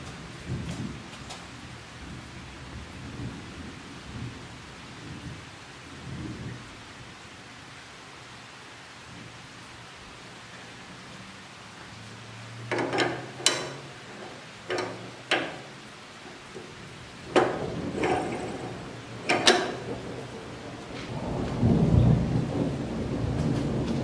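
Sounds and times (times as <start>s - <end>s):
sharp metal clicks and knocks: 12.6s - 20.6s.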